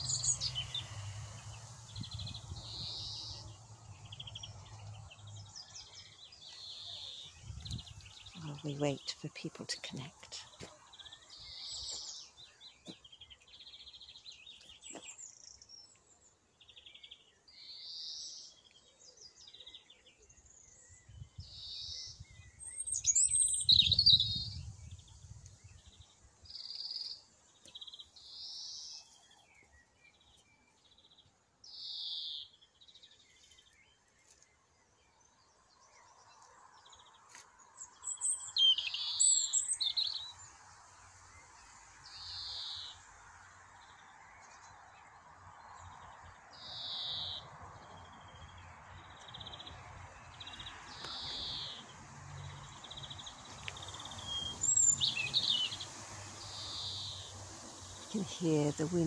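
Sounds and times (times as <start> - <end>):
songbirds singing: 0.0 - 59.0.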